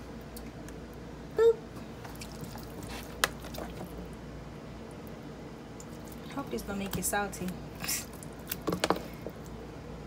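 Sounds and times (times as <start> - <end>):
wet handling noises: 1.8 - 4.2.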